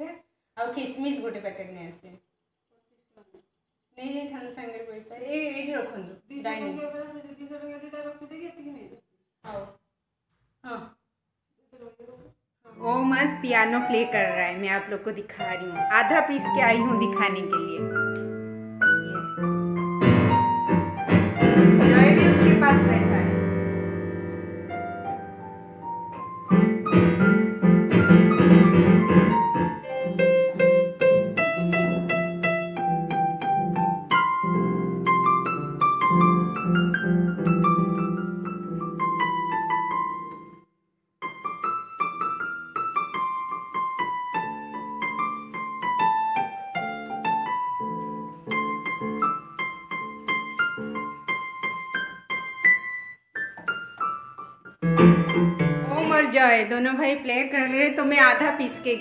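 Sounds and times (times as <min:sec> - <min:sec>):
electronic keyboard piano melody: 0:12.8 - 0:56.4.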